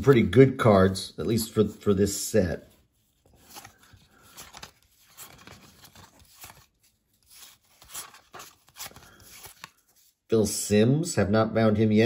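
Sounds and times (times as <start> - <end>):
wrapper tearing and crinkling: 3.4 - 9.8.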